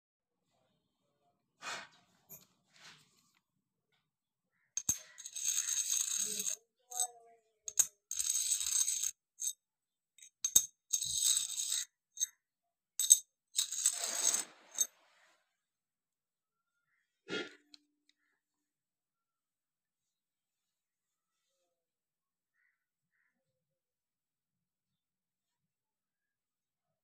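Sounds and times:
coin clicks and taps: 0:04.8 - 0:07.1, 0:07.7 - 0:09.5, 0:10.2 - 0:12.3, 0:13.0 - 0:14.9
coin scraping on paper: 0:04.8 - 0:07.1, 0:07.7 - 0:09.6, 0:10.2 - 0:12.3, 0:13.0 - 0:14.9.

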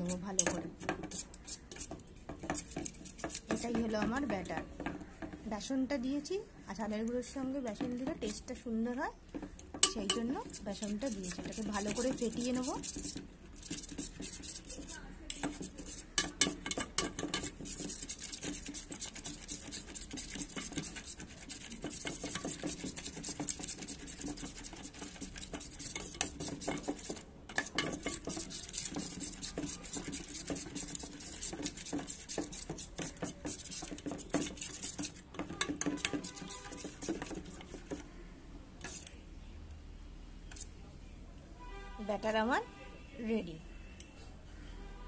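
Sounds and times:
wire whisk scraping metal bowl: 0:00.0 - 0:05.3, 0:09.4 - 0:38.0, 0:38.8 - 0:39.2.

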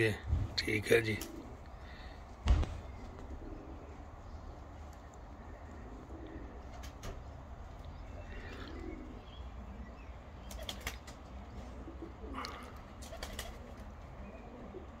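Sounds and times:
steady low rumble: 0:00.0 - 0:08.4
pigeons cooing: 0:00.0 - 0:15.0.

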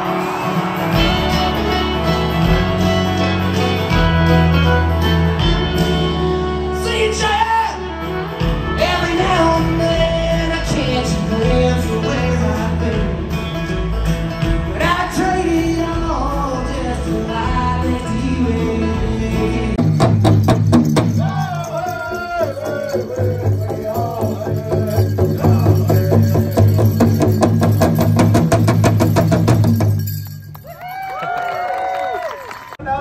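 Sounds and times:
live country band playing: 0:00.0 - 0:32.2
man singing: 0:06.7 - 0:13.6, 0:14.5 - 0:20.2, 0:21.0 - 0:27.8.

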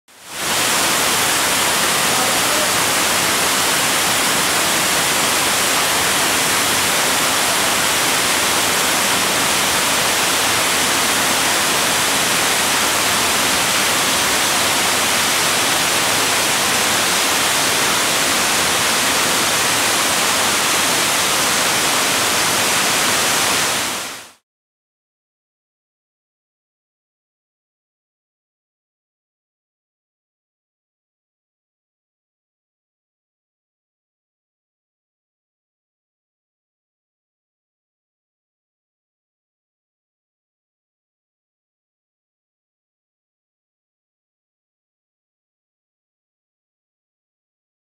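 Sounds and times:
waterfall rushing: 0:00.2 - 0:24.4.

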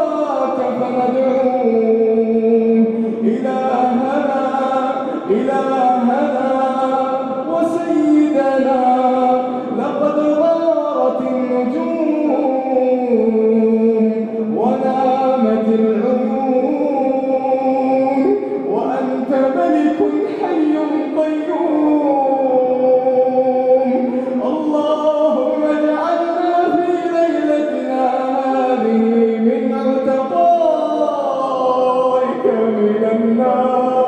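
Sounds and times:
man chanting melodically: 0:00.0 - 0:34.0.

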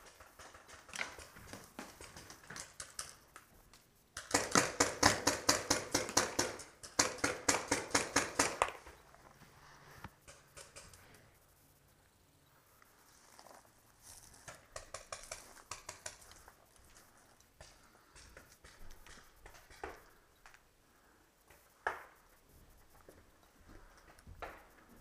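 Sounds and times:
paintball marker firing rapidly: 0:04.2 - 0:08.8.

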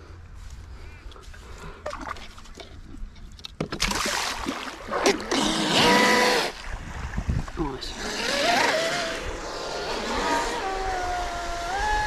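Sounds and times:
electric motor whine: 0:07.9 - 0:12.0.

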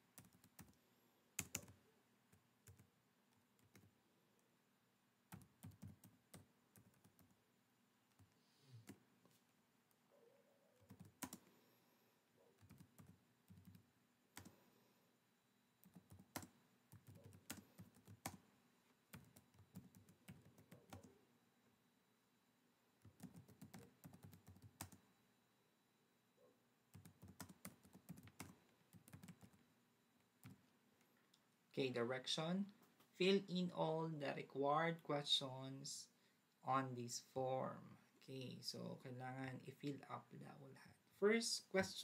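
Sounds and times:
faint keyboard typing: 0:00.0 - 0:04.6, 0:05.3 - 0:11.7, 0:12.4 - 0:14.7, 0:15.8 - 0:21.3, 0:23.0 - 0:25.2, 0:26.4 - 0:31.5.

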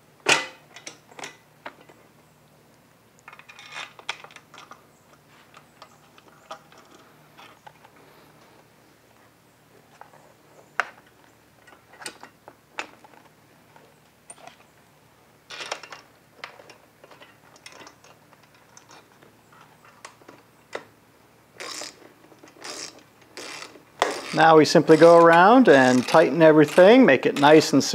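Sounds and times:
metal clicks and clinks: 0:15.5 - 0:20.4.

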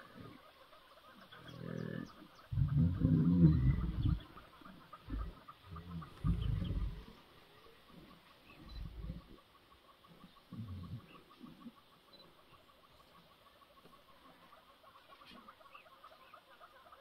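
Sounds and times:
lions growling and moaning: 0:01.4 - 0:07.2, 0:08.0 - 0:09.4, 0:10.5 - 0:11.7.

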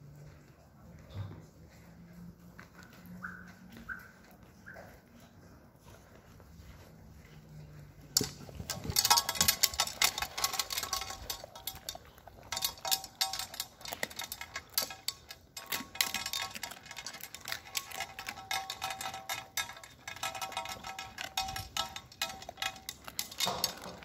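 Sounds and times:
puppies eating from metal pot: 0:07.2 - 0:24.0.

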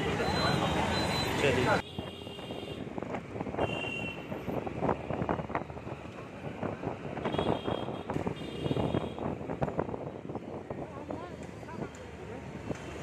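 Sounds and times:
wind buffeting microphone: 0:04.2 - 0:11.9.

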